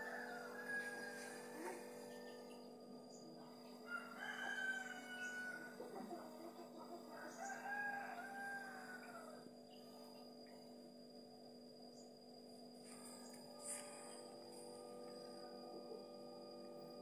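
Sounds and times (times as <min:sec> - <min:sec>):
rooster crowing: 0:00.0 - 0:02.4, 0:03.8 - 0:06.1, 0:07.0 - 0:09.4
faint steady hum: 0:00.0 - 0:17.0.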